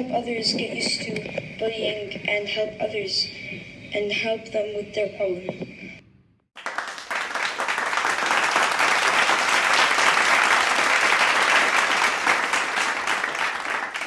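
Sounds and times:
audience applauding: 0:06.6 - 0:14.0.

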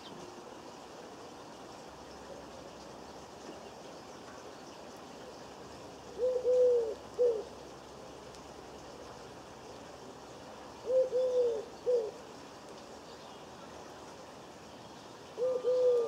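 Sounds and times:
dove cooing: 0:06.1 - 0:07.5, 0:10.8 - 0:12.2, 0:15.4 - 0:16.0.

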